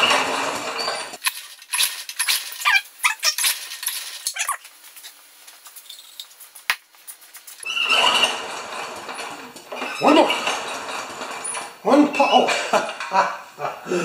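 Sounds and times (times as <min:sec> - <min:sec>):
sharp clicks and squeaks: 0:00.8 - 0:05.1, 0:05.7 - 0:08.4.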